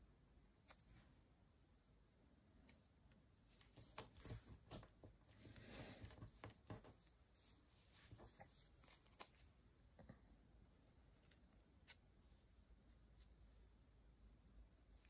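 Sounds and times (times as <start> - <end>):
soft paper rustle: 3.4 - 10.1.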